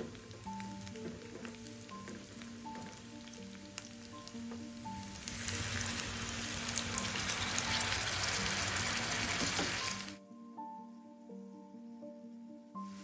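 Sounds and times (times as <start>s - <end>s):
water hissing in hot oil: 0.0s - 10.2s
food sizzling in hot oil: 0.1s - 10.2s.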